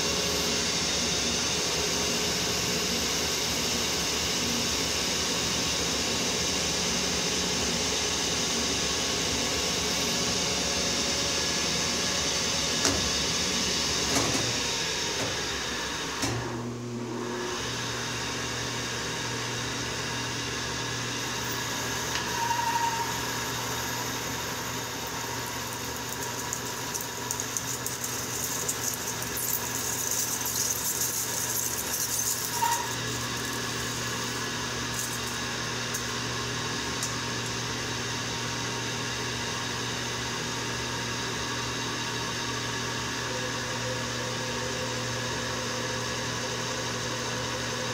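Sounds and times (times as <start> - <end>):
lathe running: 18.8 - 38.7
tool cutting metal crackle: 21.5 - 36.2.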